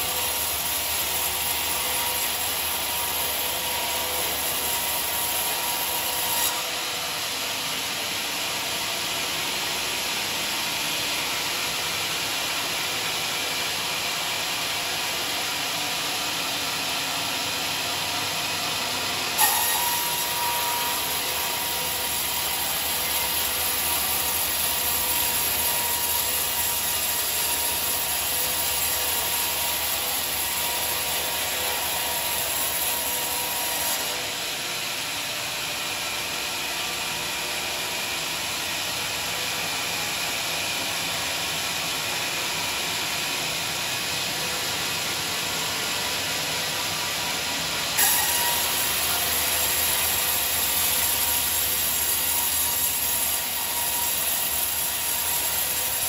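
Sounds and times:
bandsaw blade sawing wood: 0:19.4 - 0:34.4, 0:47.4 - 0:56.0.

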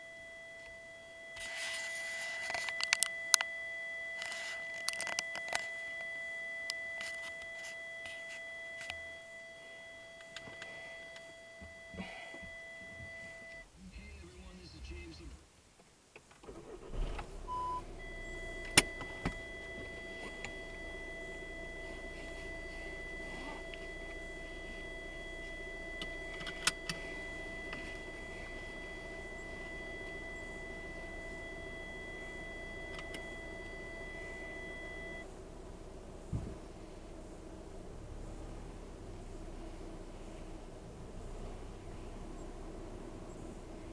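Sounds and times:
car interior hum: 0:00.0 - 0:15.5, 0:16.1 - 0:43.9
short beep: 0:17.4 - 0:35.2
soft thud: 0:36.3 - 0:36.6.

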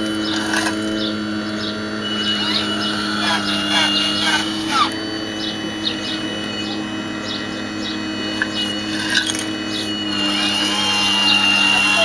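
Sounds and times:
bird chirping: 0:00.0 - 0:09.0
high motor whine: 0:00.0 - 0:12.0
pump motor hum: 0:00.0 - 0:12.0.

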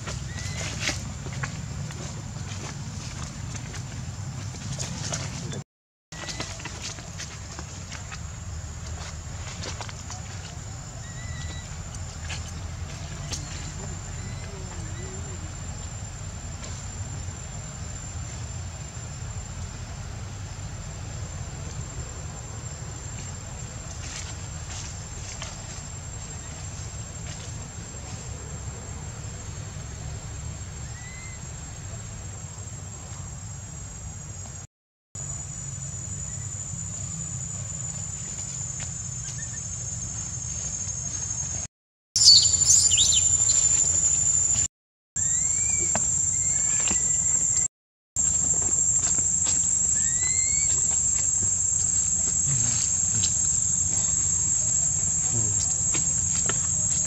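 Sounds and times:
high-pitched insect drone: 0:42.2 - 0:47.6, 0:48.2 - 0:57.0
faint rising chirps: 0:42.2 - 0:47.7.

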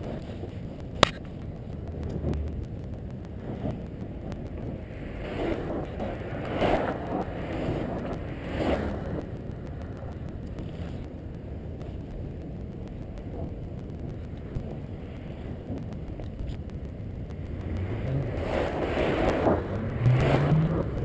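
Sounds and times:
road rumble: 0:00.0 - 0:21.0
wind on microphone: 0:00.0 - 0:21.0
vehicles rushing past: 0:17.1 - 0:21.0.

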